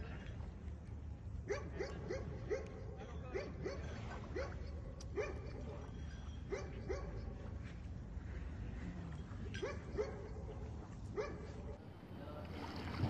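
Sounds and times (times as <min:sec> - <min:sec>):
dog barking: 0:01.5 - 0:05.8, 0:06.5 - 0:07.4, 0:09.6 - 0:10.6, 0:11.2 - 0:11.8.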